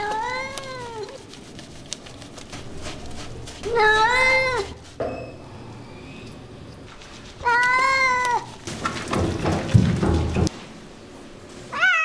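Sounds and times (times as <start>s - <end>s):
cat meowing: 0.0s - 1.2s, 3.6s - 4.8s, 7.4s - 8.5s, 11.7s - 12.0s.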